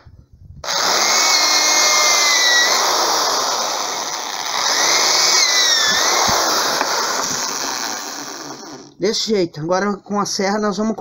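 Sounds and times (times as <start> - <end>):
electric drill boring into wood: 0.6 - 9.0.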